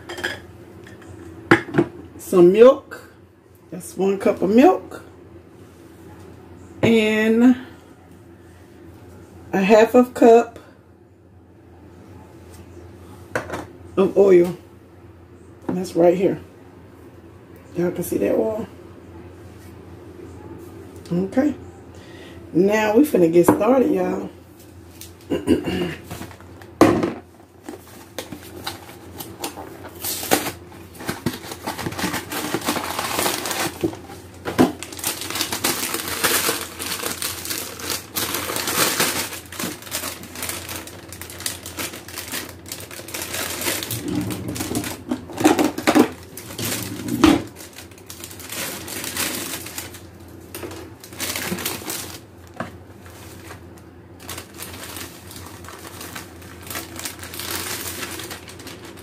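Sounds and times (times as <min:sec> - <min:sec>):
plastic bag crinkling: 0:27.8 - 0:59.0.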